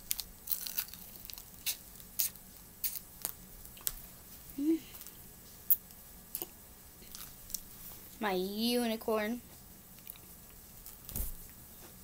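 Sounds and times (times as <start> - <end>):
crunching while eating: 0.0 - 4.0
person humming: 4.5 - 5.0.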